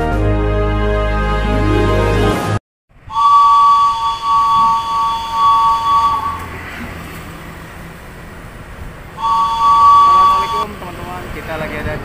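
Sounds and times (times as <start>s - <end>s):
locomotive horn two-note blast: 0.0s - 7.2s, 9.2s - 10.8s.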